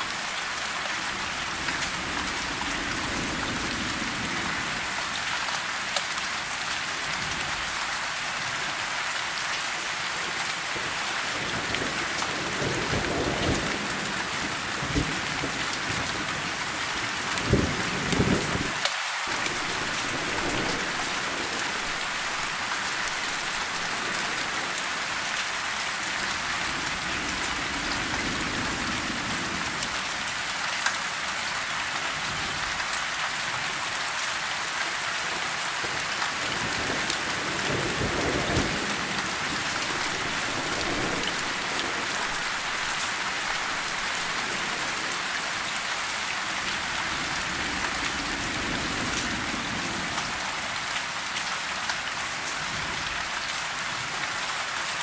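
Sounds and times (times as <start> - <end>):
rain on tree leaves: 0.0 - 55.0
thunder rolling: 17.4 - 24.7, 36.7 - 45.2.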